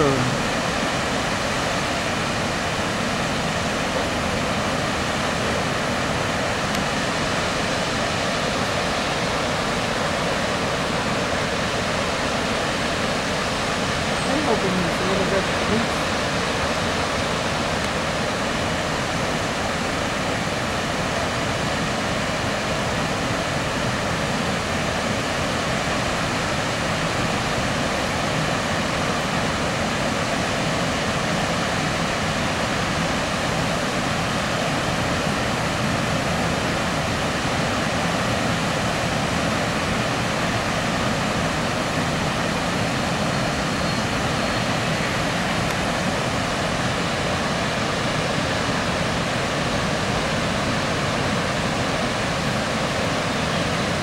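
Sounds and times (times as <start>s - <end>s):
waterfall roaring: 0.0s - 54.0s.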